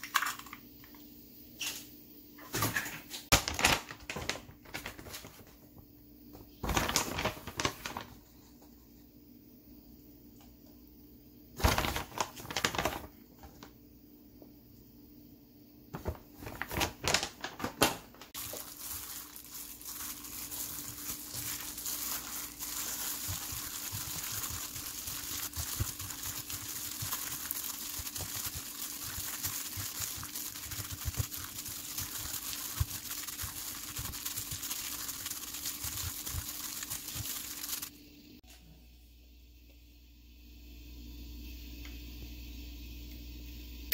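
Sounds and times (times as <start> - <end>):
plastic packet crinkling: 3.3 - 5.3, 6.6 - 8.2, 11.6 - 13.1, 16.4 - 37.9
plastic glove rustle: 6.6 - 8.2, 11.6 - 13.1, 18.3 - 37.9
hand squelching wet mixture: 18.4 - 37.9.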